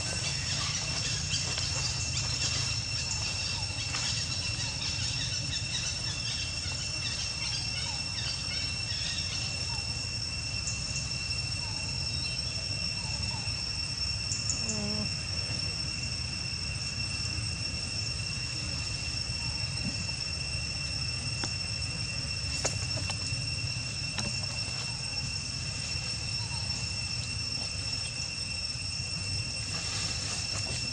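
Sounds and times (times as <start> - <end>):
high insect drone: 0.0 - 30.9.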